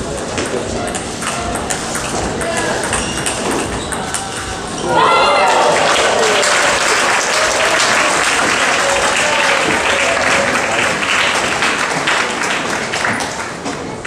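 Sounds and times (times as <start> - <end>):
people cheering: 4.8 - 14.0
spectators applauding: 5.0 - 14.0.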